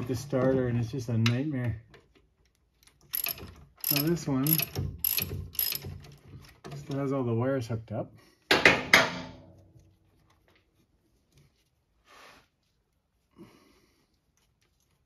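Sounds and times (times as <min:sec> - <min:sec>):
tool clinking against metal: 0:03.1 - 0:06.1.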